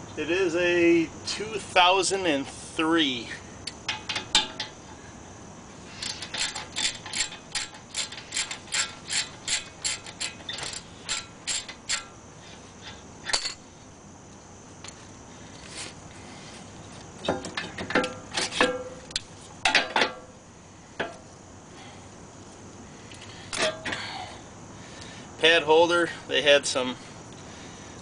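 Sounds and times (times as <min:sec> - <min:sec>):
hand ratchet clicking: 0:06.0 - 0:12.2.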